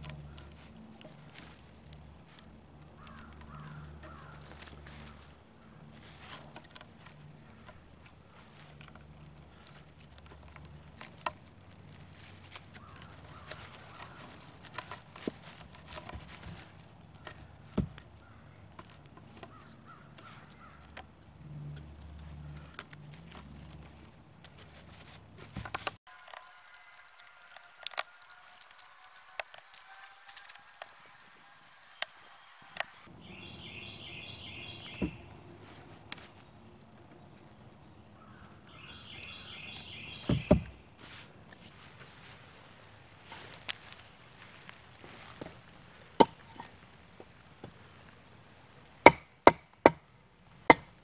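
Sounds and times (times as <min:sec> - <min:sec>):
cord pulled tight around poles: 0:00.0 - 0:33.1
birds cawing: 0:02.8 - 0:05.9, 0:12.7 - 0:14.6, 0:17.1 - 0:18.7, 0:19.4 - 0:21.0, 0:33.2 - 0:35.5, 0:38.0 - 0:40.6
wood knocks and rubs: 0:40.2 - 0:40.8.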